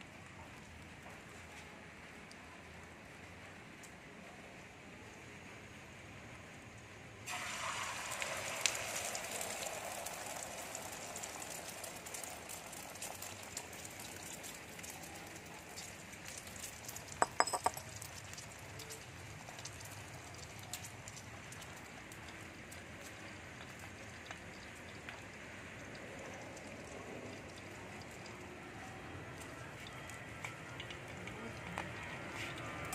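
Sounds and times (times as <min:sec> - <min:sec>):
egg sizzling in hot oil: 0:07.2 - 0:32.9
sharp clinks: 0:17.2 - 0:17.9.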